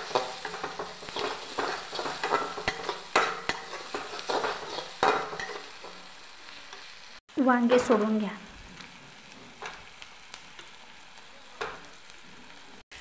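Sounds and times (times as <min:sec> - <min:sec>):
spoon stirring and scraping: 0:00.0 - 0:06.9
paste sizzling in oil: 0:00.0 - 0:13.0.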